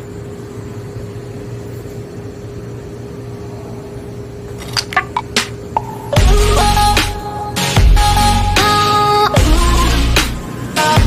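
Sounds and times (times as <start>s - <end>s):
air conditioner humming: 0.0s - 11.0s
sharp clicks and knocks: 4.6s - 5.9s.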